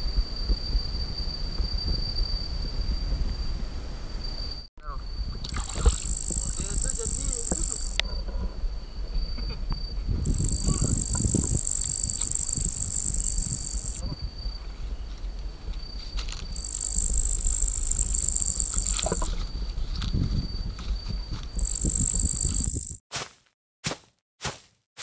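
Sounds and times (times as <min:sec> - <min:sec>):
insects buzzing chorus: 0:04.2 - 0:08.1, 0:08.7 - 0:23.0
thin high insect trill: 0:04.4 - 0:08.0, 0:09.1 - 0:15.2, 0:15.8 - 0:23.0.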